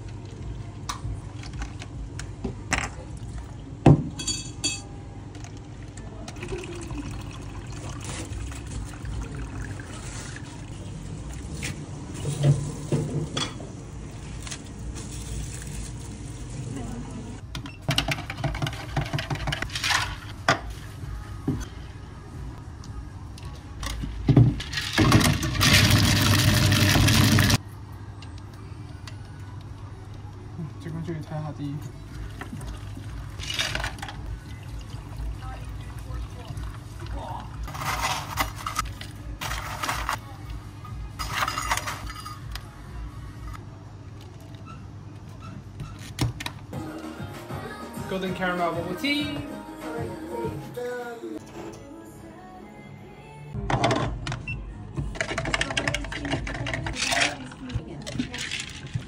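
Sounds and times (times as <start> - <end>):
drinks pouring into plastic cups: 5.9 - 11.4, 24.6 - 27.6.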